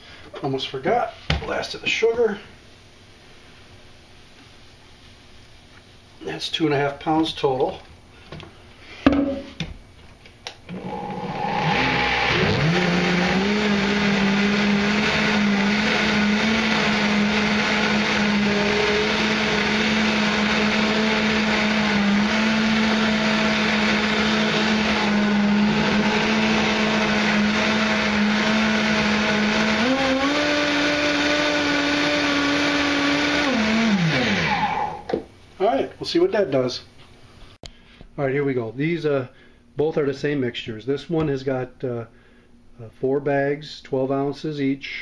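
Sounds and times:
blender motor running: 10.7s - 35.1s.

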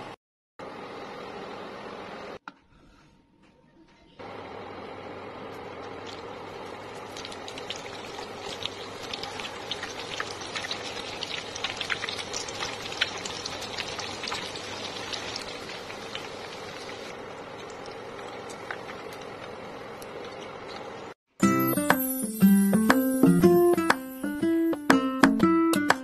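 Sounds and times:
oil sizzling and crackling: 5.2s - 21.2s.

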